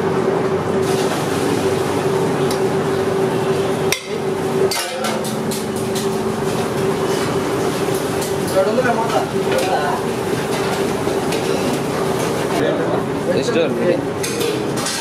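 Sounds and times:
steady hum: 0.0 - 15.0
metal cookware clinking: 4.0 - 5.7.

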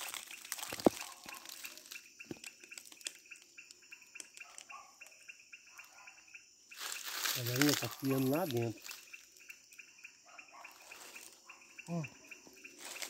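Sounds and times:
parakeets chirping: 6.8 - 13.0.

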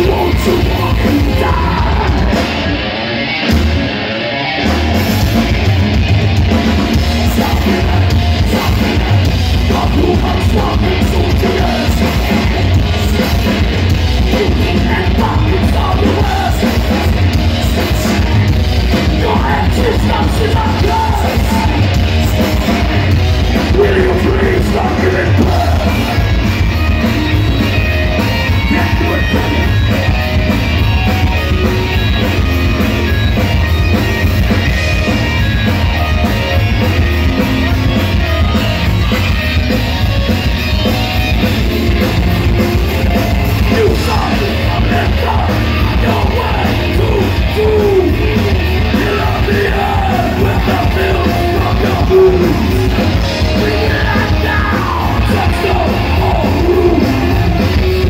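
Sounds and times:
shouted vocals: 0.0 - 2.8, 19.2 - 33.1, 43.6 - 58.0
heavy metal band playing live: 0.0 - 58.0.

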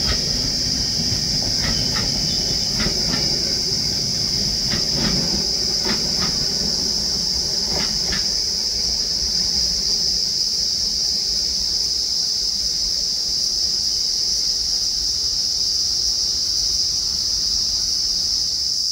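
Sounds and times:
high-pitched insect drone: 0.0 - 18.9
train rumbling away: 0.0 - 18.9.

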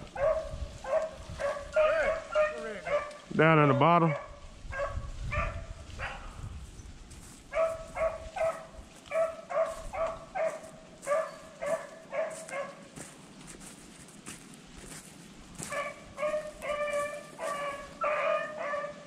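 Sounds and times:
dog barking: 0.1 - 3.2, 4.0 - 6.4, 7.5 - 13.1, 15.6 - 19.0.

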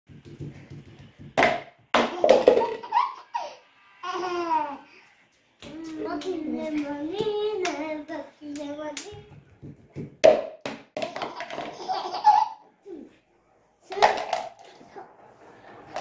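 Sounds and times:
baby laughing: 2.1 - 4.8, 11.2 - 13.1.

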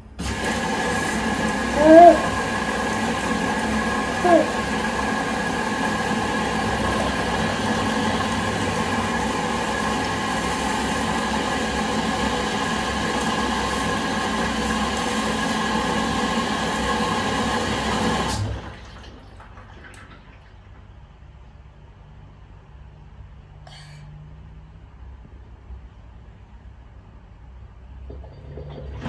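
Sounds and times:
washing machine running: 0.0 - 22.3, 26.6 - 29.0
water rushing: 0.2 - 20.1.

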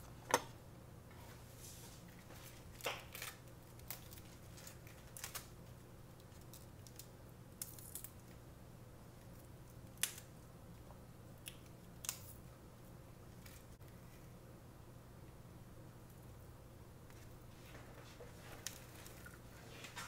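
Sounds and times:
faint low hum: 0.0 - 20.0
lettuce leaves snapping: 2.7 - 5.5, 9.9 - 10.3, 11.4 - 12.4.

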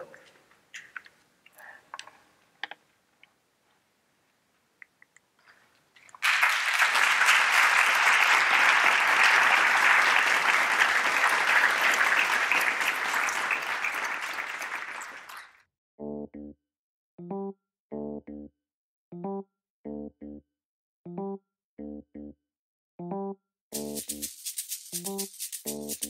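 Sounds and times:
audience applauding: 6.1 - 15.6.

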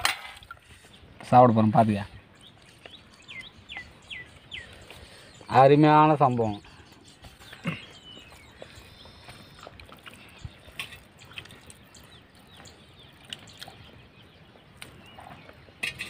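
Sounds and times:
soft clicks of people eating: 2.4 - 5.1, 6.9 - 14.0, 14.7 - 16.0.

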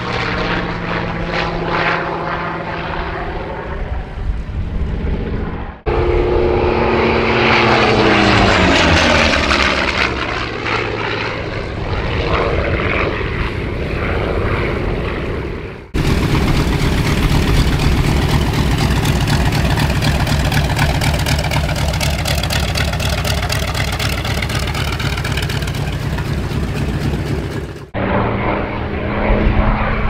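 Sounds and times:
propeller plane passing overhead: 0.0 - 30.0.

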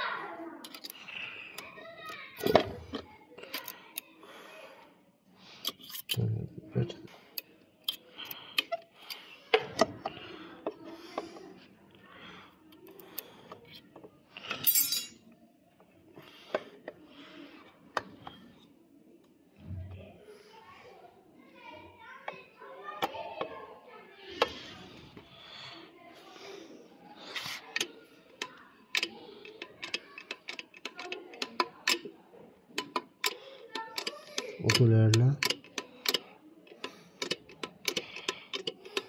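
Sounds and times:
metal parts and tools clinking: 5.6 - 6.3, 14.4 - 15.3.

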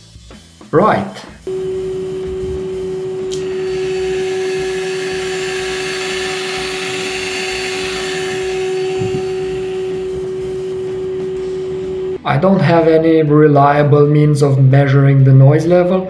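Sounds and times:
milling machine whining: 1.5 - 12.2.

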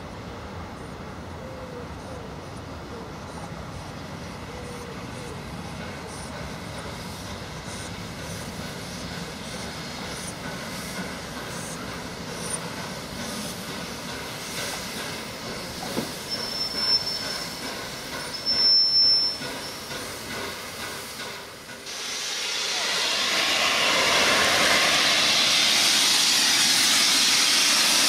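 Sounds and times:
steam train rolling over rails: 0.0 - 28.0
high-pitched brake squeal: 15.8 - 20.0.

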